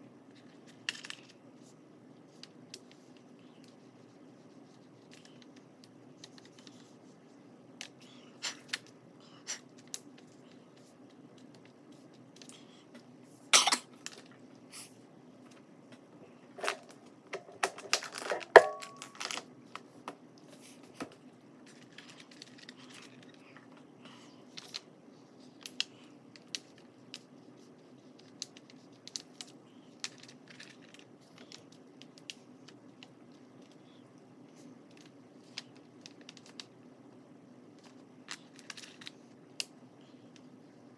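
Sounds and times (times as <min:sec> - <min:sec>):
pastel sticks clicking in plastic tray: 0:28.1 - 0:34.0, 0:34.9 - 0:36.7.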